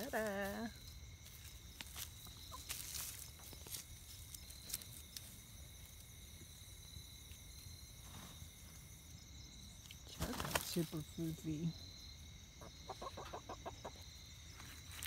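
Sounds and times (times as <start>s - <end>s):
chickens scratching in soil: 1.2s - 6.1s, 9.8s - 11.2s, 14.4s - 15.0s
chicken clucking: 12.6s - 14.2s.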